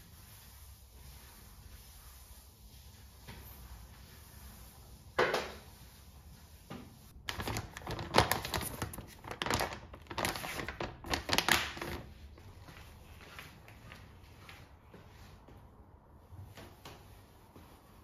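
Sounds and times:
plastic wipe pack crinkling: 7.2s - 12.1s.

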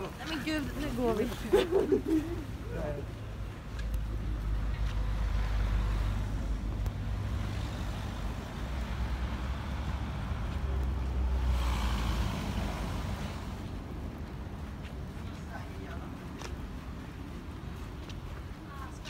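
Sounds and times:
low traffic rumble: 0.0s - 19.0s
tyres hissing on snowy road: 4.2s - 14.0s.

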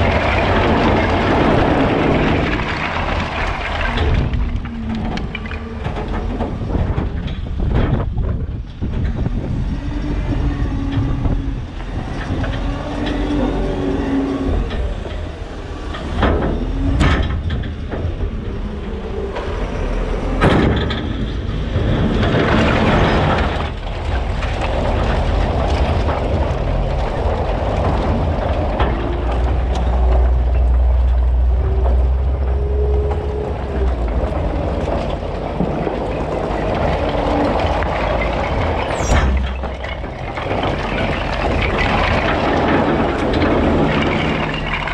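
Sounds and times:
diesel engine running under load: 0.0s - 44.9s
logs clattering and tumbling: 0.0s - 44.9s.

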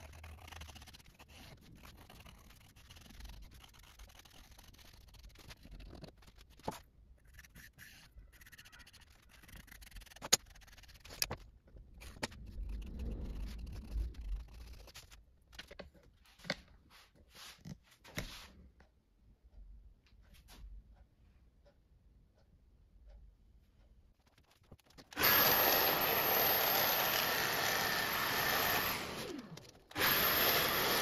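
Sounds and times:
pencil scratching on board: 0.0s - 18.6s
rubbing sound: 0.0s - 18.7s, 24.1s - 25.2s.

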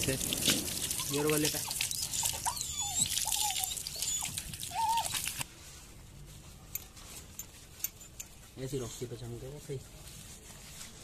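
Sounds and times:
hose water spraying: 0.0s - 5.4s
dog whining: 0.8s - 5.4s.

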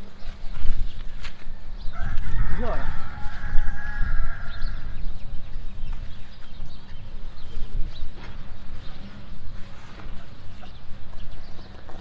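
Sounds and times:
flock of birds calling: 0.9s - 9.1s.

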